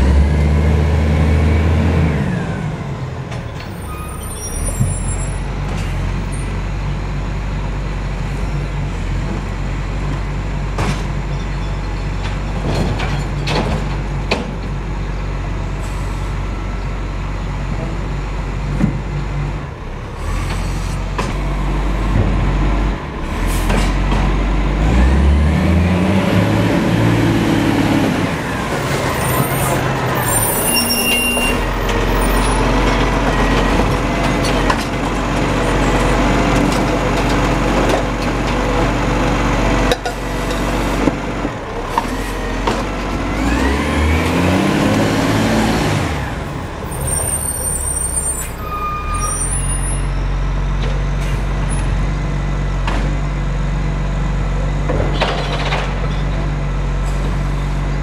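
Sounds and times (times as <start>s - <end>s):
diesel truck engine running: 31.4s - 48.6s, 50.0s - 58.0s.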